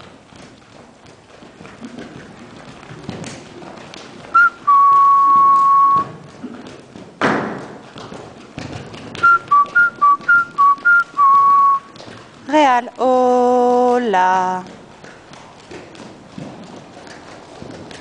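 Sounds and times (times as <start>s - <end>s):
horse hoofbeats on sand: 0.0s - 18.0s
person whistling: 4.4s - 6.1s, 9.2s - 11.9s.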